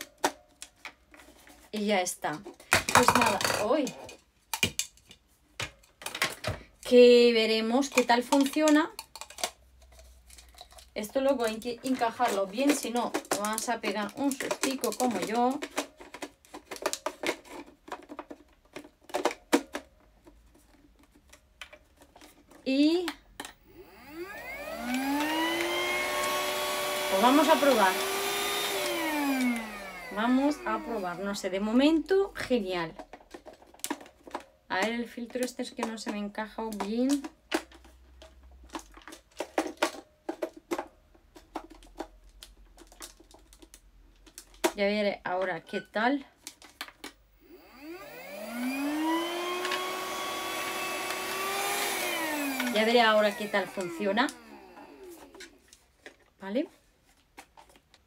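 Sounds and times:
plastic clicks and taps: 0:02.4 - 0:06.6, 0:11.5 - 0:20.4.

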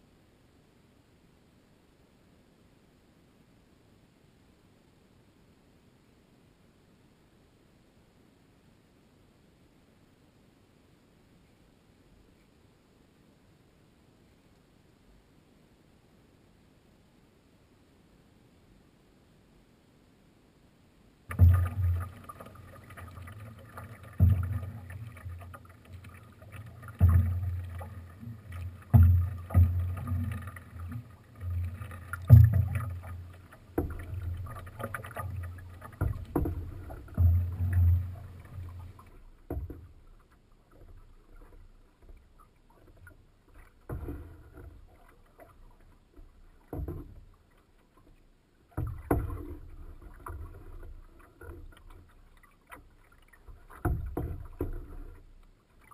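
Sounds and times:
water slapping against canoe hull: 0:21.3 - 0:55.9.

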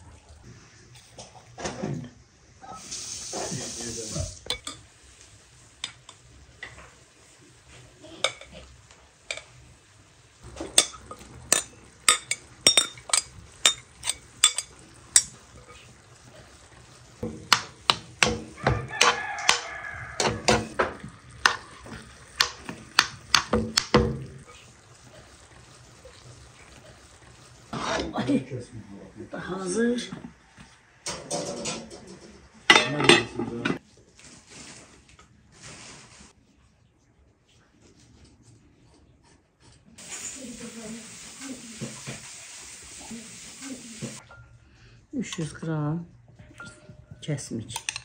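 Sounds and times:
spoon clicking on frying pan: 0:09.3 - 0:09.6, 0:10.6 - 0:15.6, 0:17.2 - 0:24.2.

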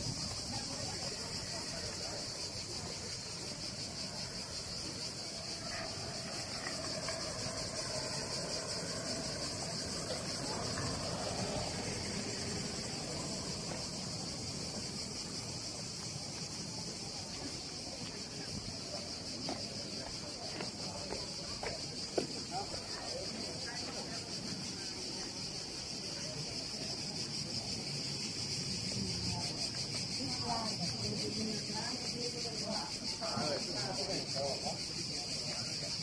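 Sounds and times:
cicadas buzzing: 0:00.0 - 0:36.0.

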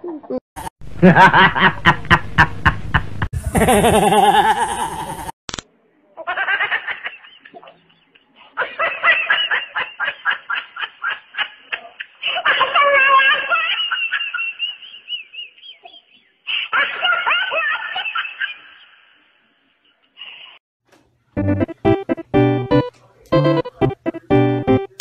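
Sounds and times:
man laughing loudly: 0:01.0 - 0:05.3.

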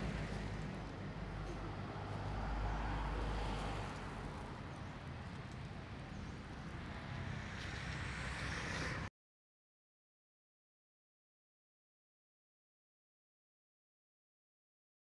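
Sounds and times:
cars passing: 0:00.0 - 0:09.1
low traffic rumble: 0:00.0 - 0:09.1.

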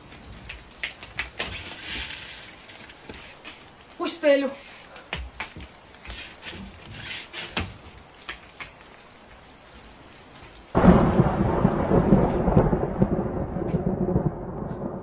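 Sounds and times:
rain: 0:00.0 - 0:15.0
light rustling and taps: 0:04.9 - 0:10.7
thunder clap and rumble: 0:10.7 - 0:15.0.

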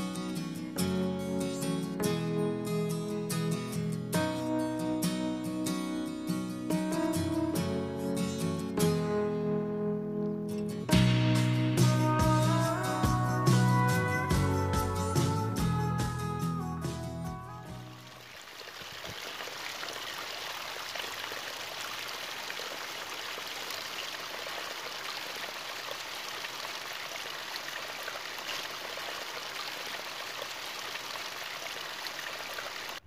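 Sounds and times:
stream pouring over rocks: 0:17.8 - 0:33.0.

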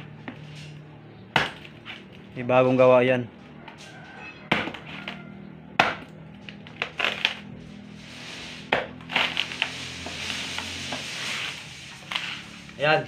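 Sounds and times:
machete hacking into coconut: 0:01.3 - 0:01.7, 0:04.5 - 0:05.1, 0:05.8 - 0:06.1, 0:08.7 - 0:10.1
coconut cracking open: 0:05.8 - 0:07.5, 0:08.7 - 0:09.7.

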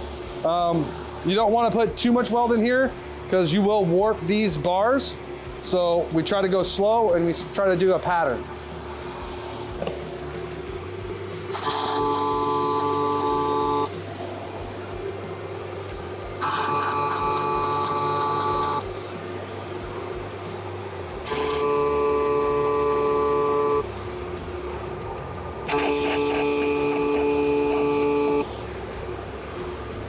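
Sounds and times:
welder arc buzzing: 0:08.7 - 0:14.5, 0:15.4 - 0:24.7, 0:25.6 - 0:28.8.

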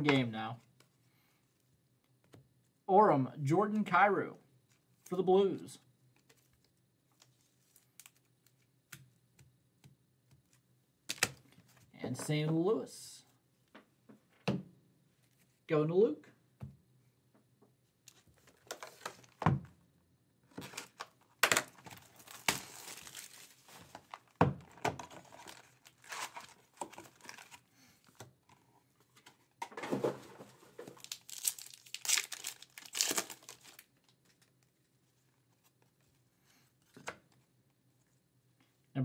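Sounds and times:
foil wrapper tearing and crinkling: 0:20.8 - 0:24.1, 0:25.2 - 0:27.6, 0:30.9 - 0:33.9.

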